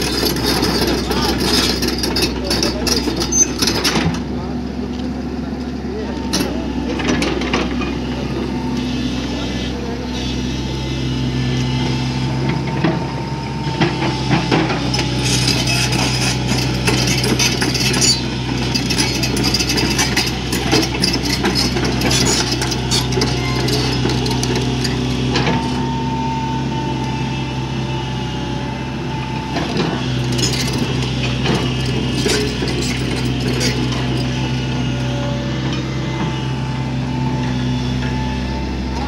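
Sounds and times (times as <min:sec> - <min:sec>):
excavator diesel engine running: 0:00.0 - 0:39.0
steel tracks clanking: 0:29.6 - 0:35.0.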